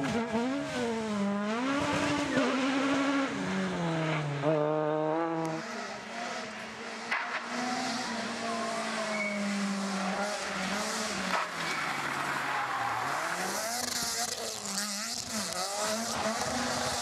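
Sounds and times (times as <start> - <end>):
rally car engines revving: 0.0 - 17.0
tyre squeal: 9.0 - 10.6, 11.4 - 14.5.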